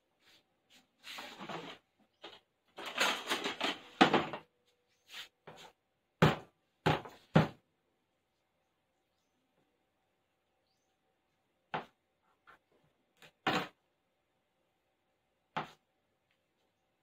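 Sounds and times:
kitchen items clattering: 1.3 - 4.4.

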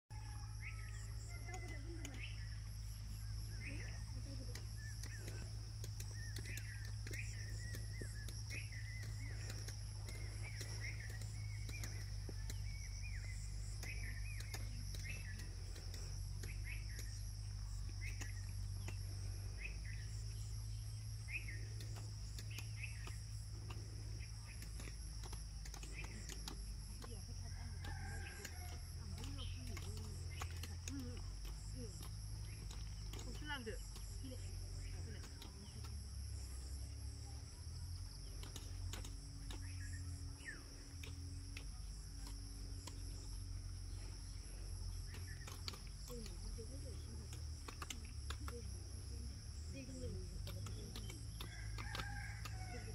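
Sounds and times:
crickets chirring: 0.1 - 52.9
insects trilling: 0.1 - 52.9
faint clicks: 3.6 - 20.5, 38.2 - 44.3.

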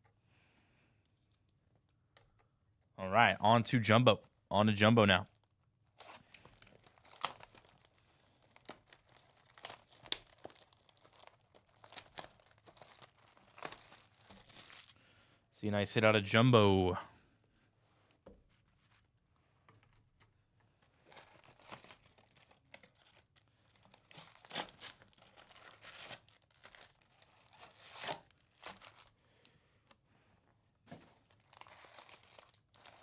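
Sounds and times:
packaging tearing and crinkling: 6.0 - 15.0, 21.0 - 29.1, 31.0 - 33.0.

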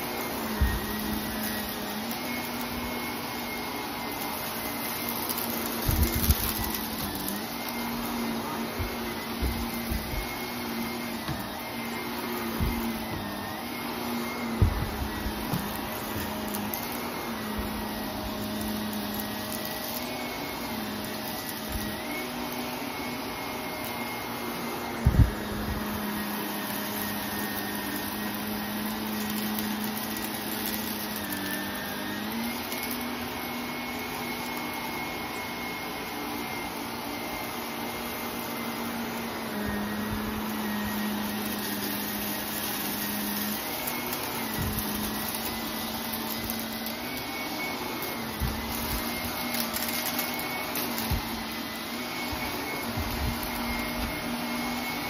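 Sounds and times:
vacuum cleaner running on carpet: 0.0 - 55.0.

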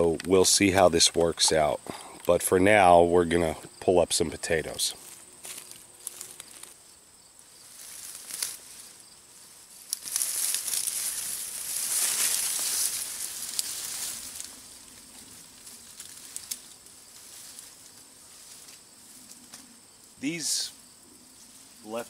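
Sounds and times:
foliage rustling and swishing: 7.6 - 19.7
plant stems snapping: 9.8 - 11.2, 11.8 - 14.5, 16.0 - 16.7.

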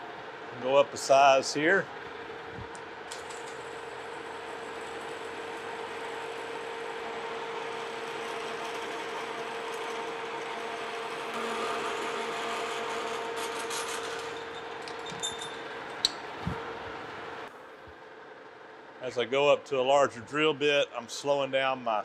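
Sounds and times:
metal lathe running: 3.6 - 16.0
drill cutting metal: 11.4 - 14.6.

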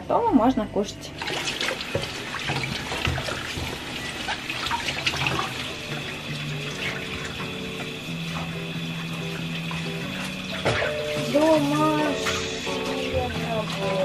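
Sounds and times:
dish scrubbing: 1.1 - 14.0
tap water running into sink: 1.1 - 14.0
water splashing: 1.1 - 14.0
dish knocking: 10.5 - 13.9.

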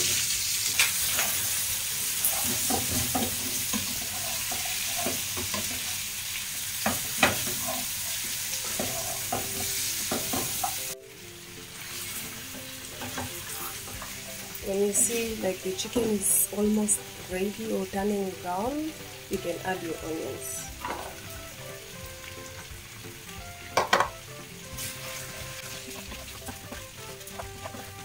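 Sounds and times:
chicken sizzling in hot oil: 0.0 - 28.0
wooden spatula scraping a pan: 2.2 - 6.0, 6.9 - 10.8, 20.8 - 21.2, 24.8 - 28.0.

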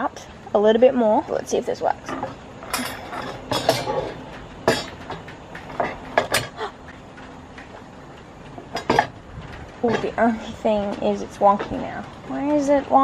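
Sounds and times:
wire holder clanking on metal hooks: 2.0 - 7.8, 8.4 - 13.0.

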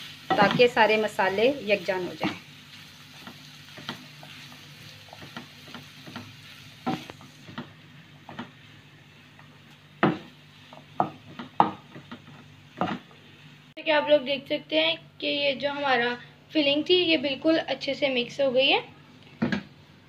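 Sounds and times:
faint sizzle: 0.0 - 20.0
spatula knocking against pan: 10.0 - 13.1.

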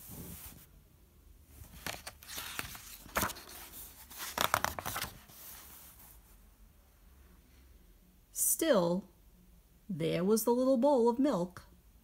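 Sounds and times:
book pages turning: 1.6 - 6.2.

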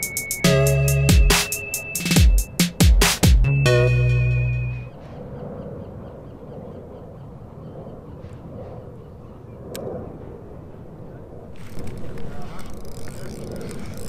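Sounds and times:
electronic music: 0.0 - 4.9
fishing reel ticking: 11.6 - 14.0.

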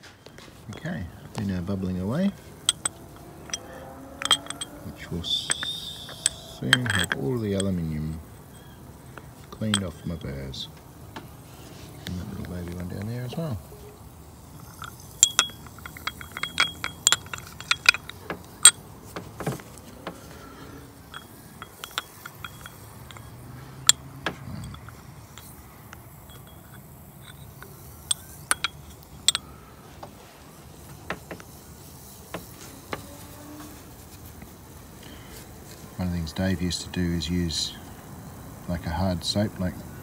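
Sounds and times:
metal clinking against glass jar: 1.6 - 11.4, 12.4 - 29.7.

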